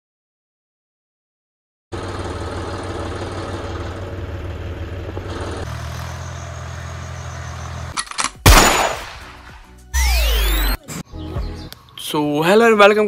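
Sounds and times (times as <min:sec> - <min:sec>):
tractor engine running: 0:02.0 - 0:08.0.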